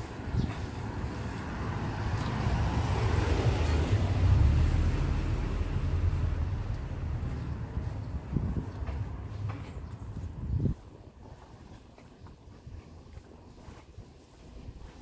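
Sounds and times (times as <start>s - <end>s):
vehicle passing on street: 0.0s - 11.0s.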